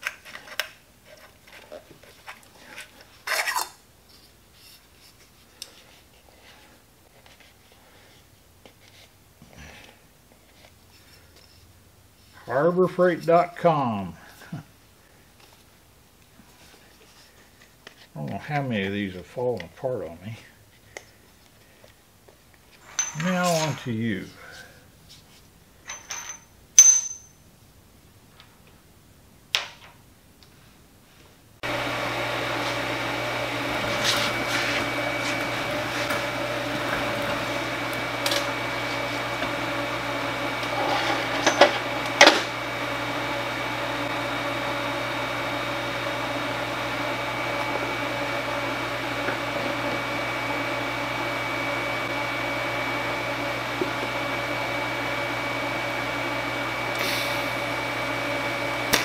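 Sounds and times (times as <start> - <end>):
metal clinks on steel table: 25.9 - 27.4
cooling fan whir: 31.6 - 59.0
welding machine hum: 31.6 - 59.0.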